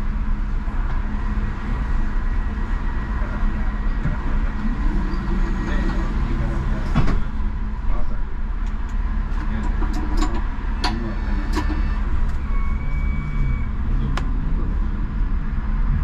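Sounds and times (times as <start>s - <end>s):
tram rumbling: 0.0s - 16.0s
brief high tone: 11.6s - 13.8s.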